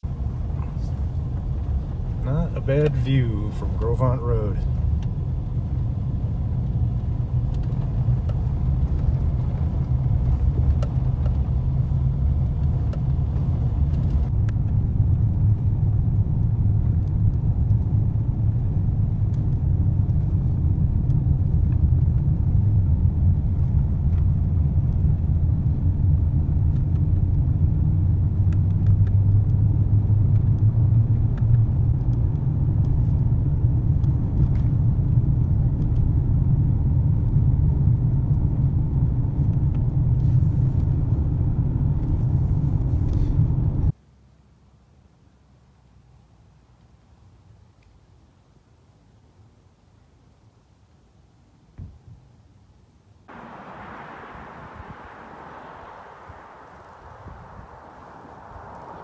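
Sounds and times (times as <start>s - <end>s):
vehicle road and engine rumble: 0.0s - 59.0s
light hiss: 53.3s - 59.0s.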